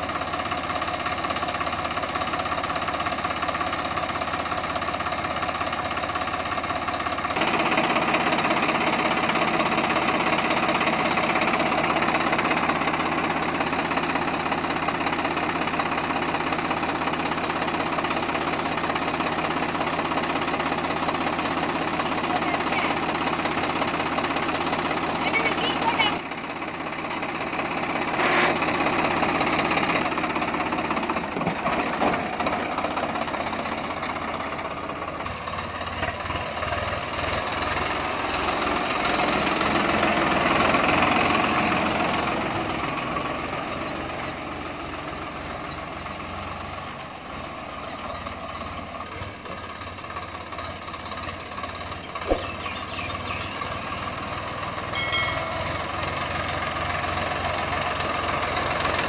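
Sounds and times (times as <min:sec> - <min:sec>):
tractor diesel engine running: 0:00.0 - 0:59.0
sharp click: 0:52.2 - 0:52.6, 0:53.5 - 0:53.8.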